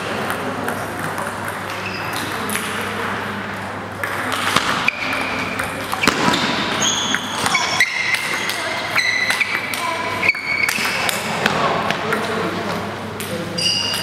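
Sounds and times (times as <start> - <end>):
murmur of sports hall: 0.0 - 14.0.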